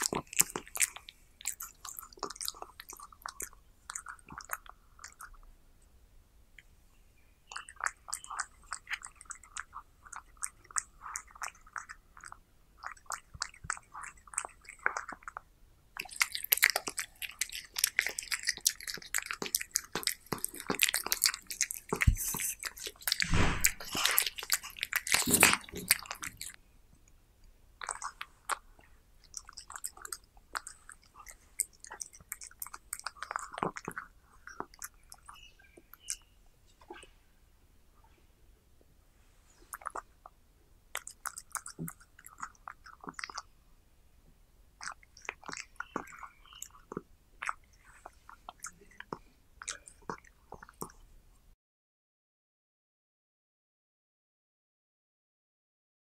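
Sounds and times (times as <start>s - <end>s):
cat chewing meat: 0.0s - 5.4s, 7.7s - 15.4s, 16.0s - 26.6s, 27.8s - 36.2s, 39.6s - 43.5s, 44.8s - 51.0s.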